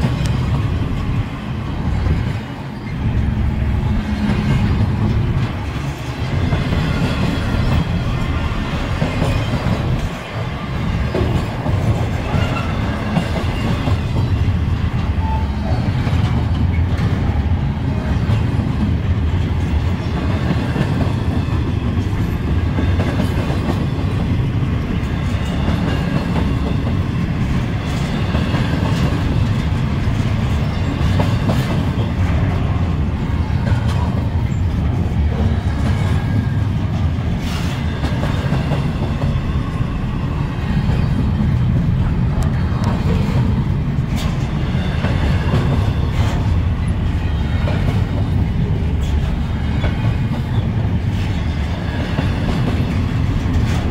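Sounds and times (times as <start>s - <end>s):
freight train wheels rumbling: 0.0s - 53.9s.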